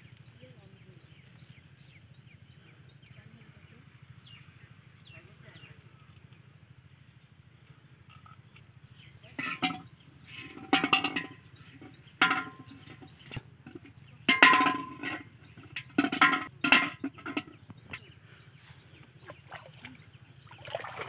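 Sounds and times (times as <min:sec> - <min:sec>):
pot scraping on ground: 0:09.2 - 0:18.1
metal cooking pot clanking: 0:09.3 - 0:18.1.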